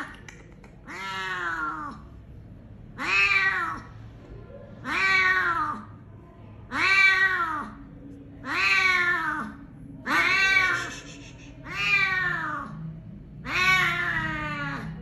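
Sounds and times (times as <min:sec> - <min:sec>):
cat meowing: 0:00.8 - 0:02.0, 0:03.0 - 0:03.9, 0:04.8 - 0:05.9, 0:06.7 - 0:07.8, 0:08.4 - 0:12.8, 0:13.4 - 0:15.0.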